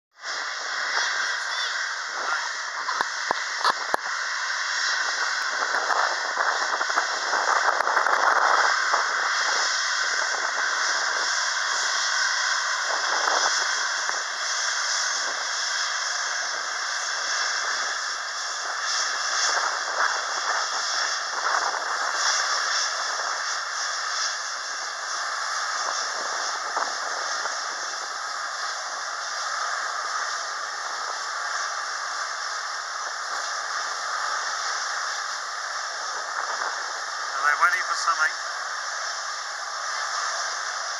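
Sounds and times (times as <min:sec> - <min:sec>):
jet engines hissing: 0:00.2 - 0:40.9.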